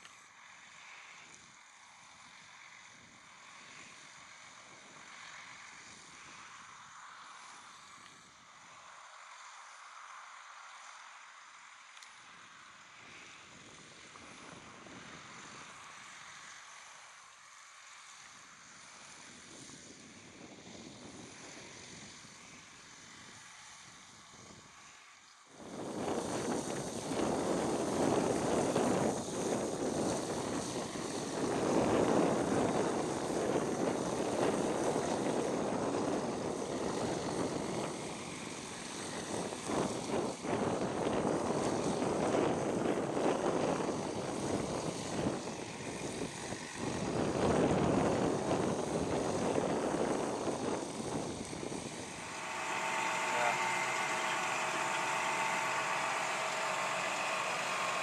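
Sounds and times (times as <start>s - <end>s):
tractor engine running: 50.8s - 58.0s.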